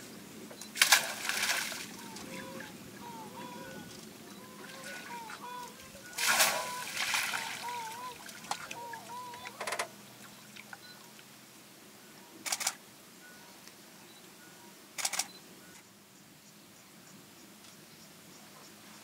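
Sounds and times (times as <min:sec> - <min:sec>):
camera shutters clicking in bursts: 0:12.4 - 0:12.8, 0:15.0 - 0:15.4.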